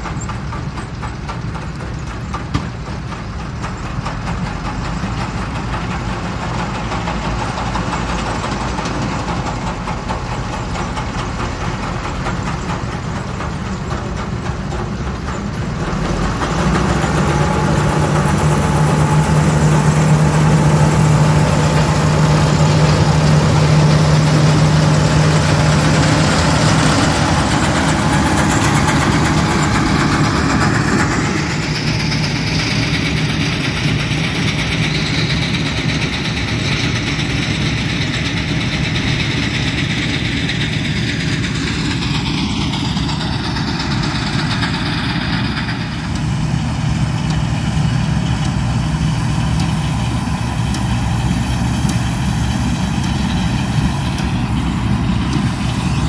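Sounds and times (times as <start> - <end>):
combine harvester engine: 0.0 - 56.0
tractor engine running: 0.0 - 56.0.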